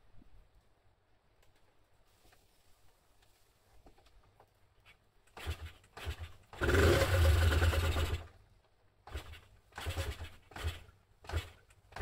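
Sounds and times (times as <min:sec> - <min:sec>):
motorcycle engine start attempt: 0:05.3 - 0:08.4, 0:09.0 - 0:12.0.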